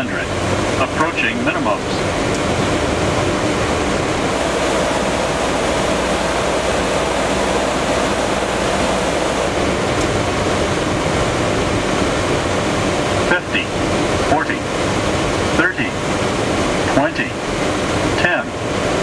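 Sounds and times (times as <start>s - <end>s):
airflow and aircraft engines rushing: 0.0s - 19.0s
faint steady hum: 2.0s - 14.0s.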